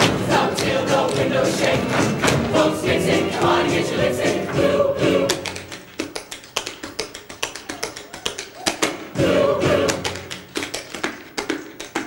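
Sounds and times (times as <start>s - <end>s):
choir singing in harmony: 0.0s - 5.9s, 9.0s - 10.7s.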